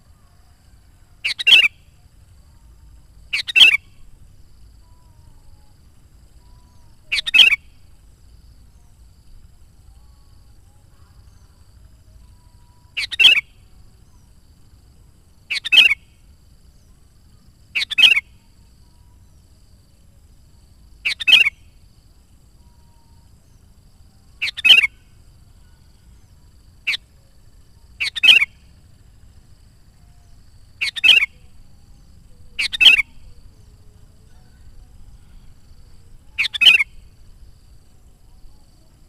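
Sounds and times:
bulbul calling: 1.2 - 2.1, 3.2 - 5.7, 6.4 - 8.0, 10.7 - 14.3, 15.4 - 16.2, 17.7 - 18.4, 21.0 - 21.8, 24.4 - 27.2, 27.9 - 28.7, 30.0 - 37.4.

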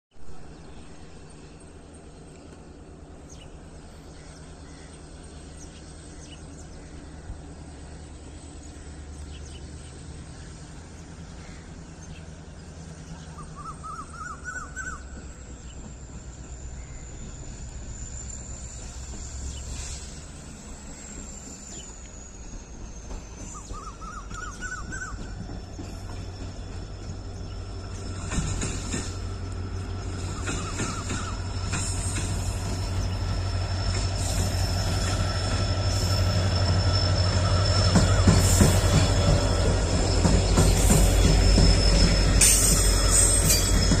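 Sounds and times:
distant diesel locomotive rumble: 0.1 - 44.0.

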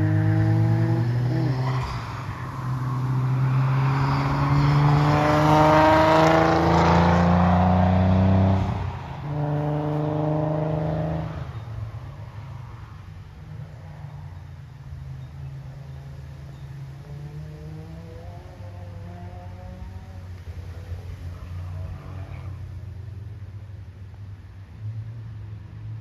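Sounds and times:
car engine accelerating hard: 0.0 - 11.7, 17.0 - 22.8.

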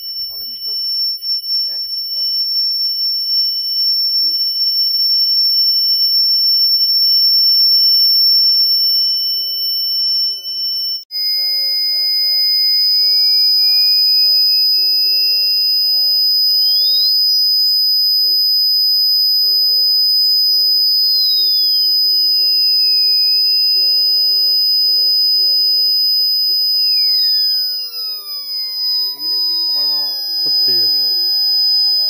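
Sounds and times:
piercing high-pitched tones: 0.0 - 32.0.

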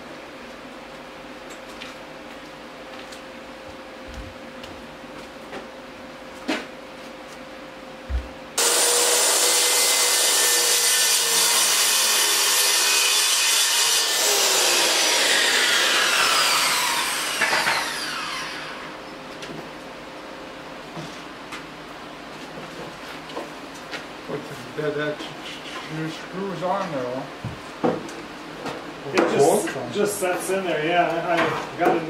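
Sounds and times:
power tool cutting wood: 8.6 - 19.0
power tool winding down whine: 13.7 - 19.0.

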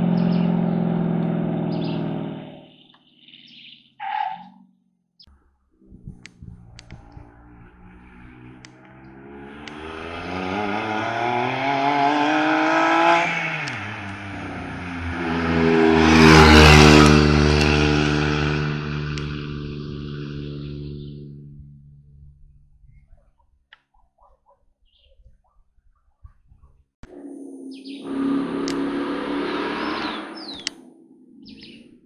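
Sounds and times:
race car engine accelerating: 0.0 - 2.7, 5.8 - 21.8, 27.0 - 32.0.

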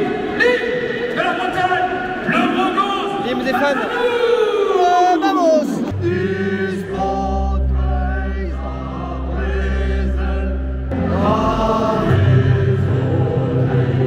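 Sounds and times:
crowd singing a chant: 5.8 - 14.0.

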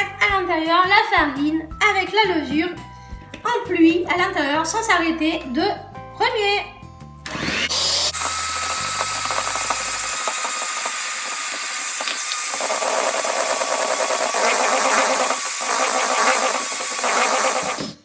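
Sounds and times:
electric mixer whining: 7.2 - 18.0.

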